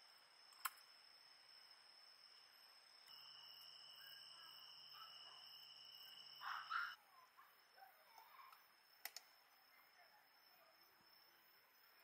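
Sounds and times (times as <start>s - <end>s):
high insect trill: 0.0s - 12.0s
faint bird chirps: 3.0s - 11.4s
sharp clicks: 9.0s - 9.3s.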